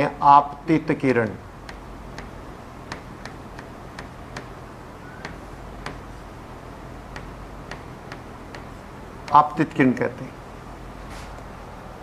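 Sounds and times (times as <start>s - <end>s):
low room hum: 0.0s - 12.0s
taps of writing on a board: 1.2s - 4.6s, 5.2s - 6.2s, 7.1s - 9.5s.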